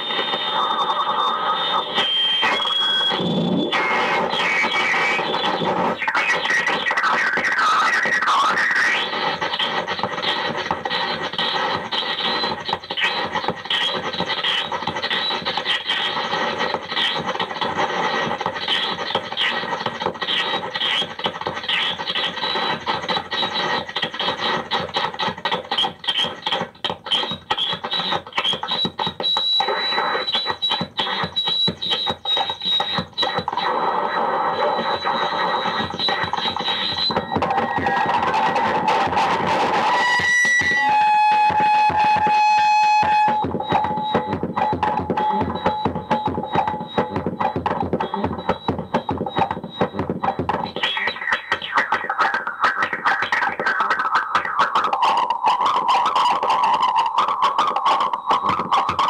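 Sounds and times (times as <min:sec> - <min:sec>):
thin high whine: 0:00.0 - 0:19.8, 0:27.2 - 0:53.0
harsh electronic noise music: 0:00.0 - 0:59.0.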